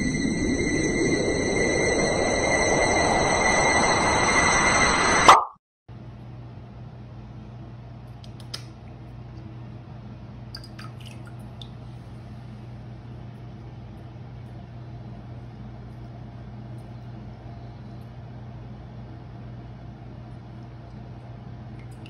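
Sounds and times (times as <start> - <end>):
low room hum: 5.9 - 22.0.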